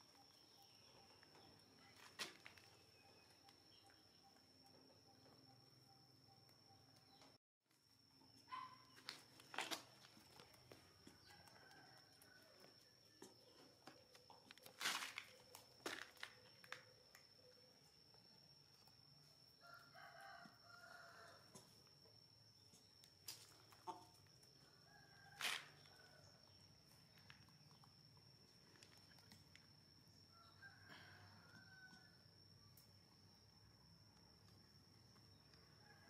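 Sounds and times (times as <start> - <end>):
faint rooster crowing: 10.8 - 13.6, 19.6 - 21.7, 23.8 - 26.7, 30.1 - 32.8, 35.3 - 36.0.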